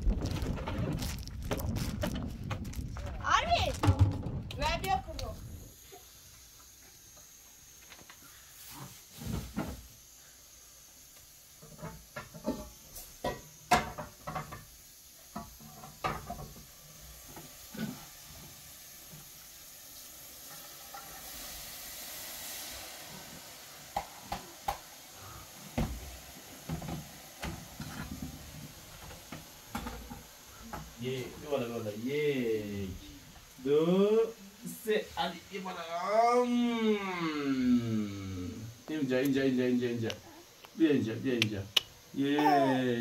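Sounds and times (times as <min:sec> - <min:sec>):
knocks and clatter: 0:00.0 - 0:04.9
soft hiss: 0:01.0 - 0:43.0.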